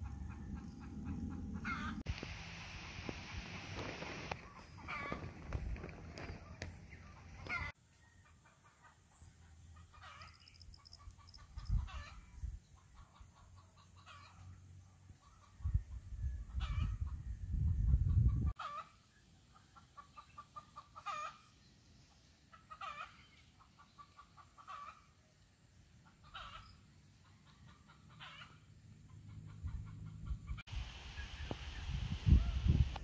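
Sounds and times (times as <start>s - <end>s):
wind rumble on microphone: 2.9s - 7.7s, 11.0s - 12.8s, 15.4s - 18.6s, 29.5s - 33.0s
chickens clucking: 3.8s - 9.2s, 9.8s - 12.2s, 16.6s - 21.5s, 22.5s - 25.2s, 26.0s - 30.6s.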